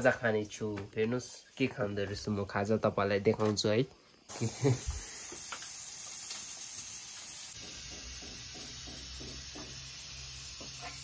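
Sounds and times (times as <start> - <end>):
hot oil sizzling: 4.3 - 11.0.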